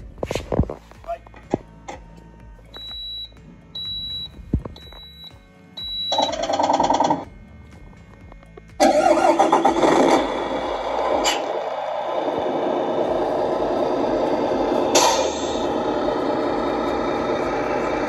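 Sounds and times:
simulated truck diesel engine: 0.0s - 18.0s
short high beeps: 2.8s - 7.2s.

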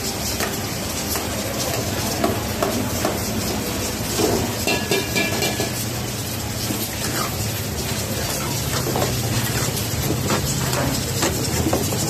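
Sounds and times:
food sizzling in fat: 0.0s - 12.0s
metal ladle knocking pan: 4.6s - 5.9s.

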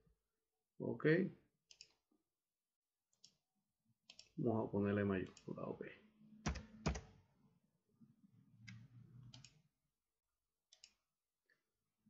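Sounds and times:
keyboard clicks: 6.5s - 7.1s
computer mouse clicks: 8.6s - 9.6s, 10.7s - 11.0s.

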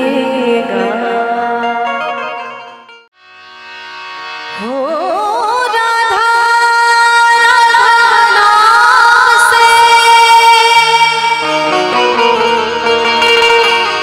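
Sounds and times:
woman singing: 0.0s - 2.1s, 4.6s - 11.6s
harmonium: 0.0s - 14.0s.

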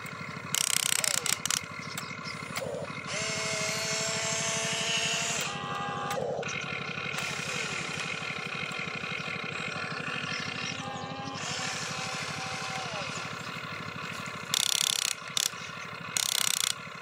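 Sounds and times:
electric motors whirring: 0.0s - 16.8s.

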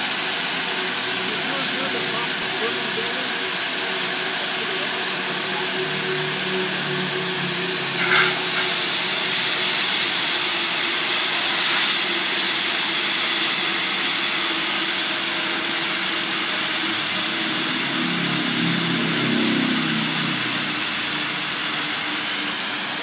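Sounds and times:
hose nozzle rushing hiss: 0.0s - 17.8s.

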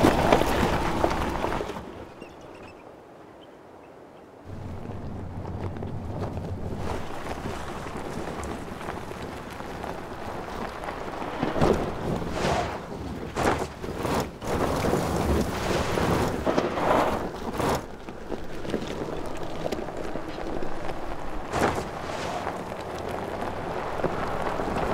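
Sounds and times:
tyres crunching over stones: 0.0s - 2.5s, 4.5s - 24.9s
wind-like rushing noise: 4.4s - 18.0s, 20.1s - 24.9s.

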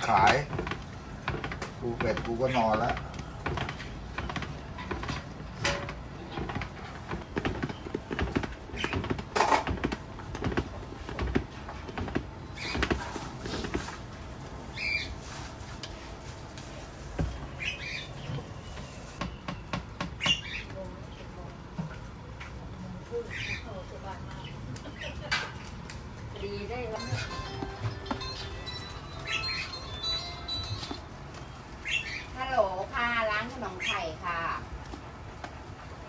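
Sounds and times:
high chirps: 26.9s - 31.0s.

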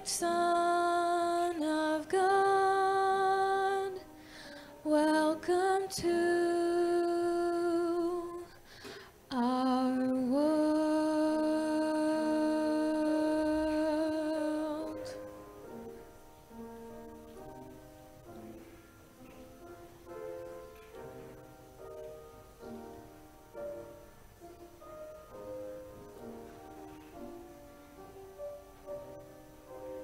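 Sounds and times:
person singing long notes: 9.3s - 15.2s.

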